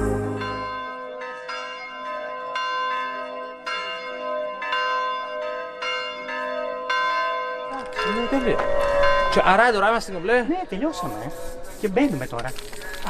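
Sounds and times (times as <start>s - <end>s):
bells ringing: 0.0s - 11.0s.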